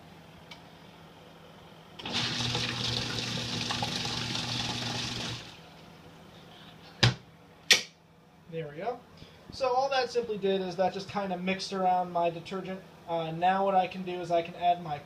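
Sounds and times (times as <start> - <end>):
washing machine motor humming: 2.0 - 5.8.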